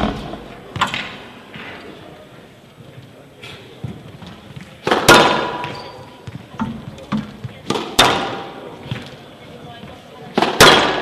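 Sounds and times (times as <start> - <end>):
ball hitting court walls: 0.0 - 1.8, 3.8 - 9.2, 9.8 - 11.0
squash racket striking ball: 4.5 - 9.1, 10.3 - 11.0.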